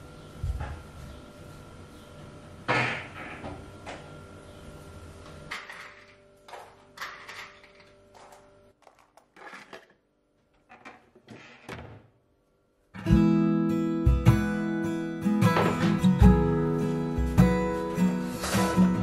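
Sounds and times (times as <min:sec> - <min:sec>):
small objects knocking and rustling: 0:05.6 - 0:11.7
strummed acoustic guitar music: 0:13.0 - 0:19.0.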